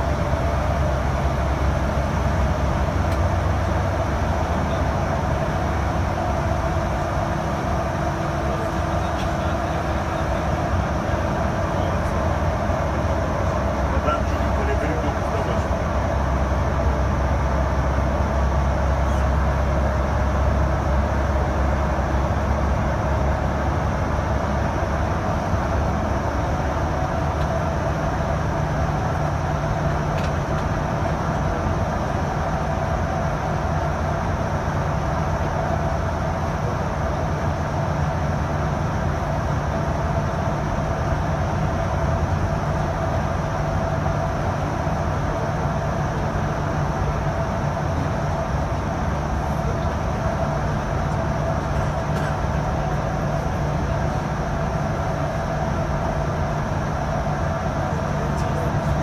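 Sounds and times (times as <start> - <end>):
car road and engine noise: 0.0 - 59.0.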